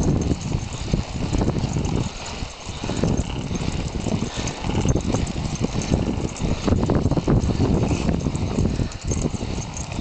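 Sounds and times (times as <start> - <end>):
skate wheels rolling on concrete: 0.0 - 10.0
wind buffeting microphone: 0.0 - 10.0.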